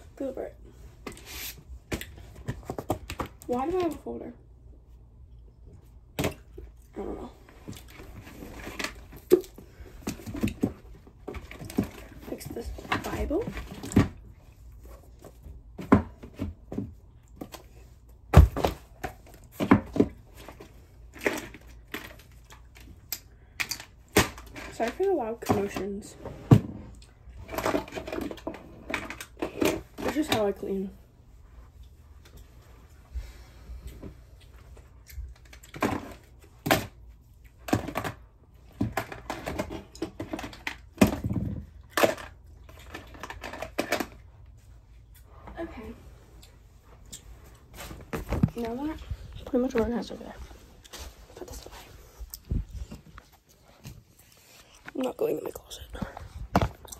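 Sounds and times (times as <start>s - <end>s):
knocks and thuds of things set down: 15.2s - 17.5s, 18.3s - 22.1s, 37.6s - 42.3s, 47.7s - 48.9s, 56.0s - 56.9s
household objects clattering: 23.6s - 30.6s, 37.6s - 44.4s.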